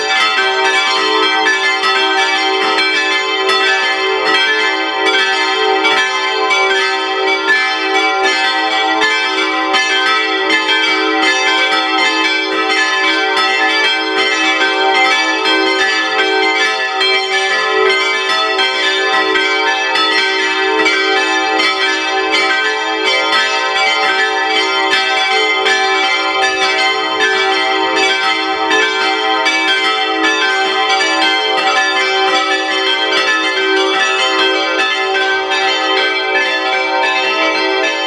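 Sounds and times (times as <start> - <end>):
church bells pealing: 0.0 - 38.0.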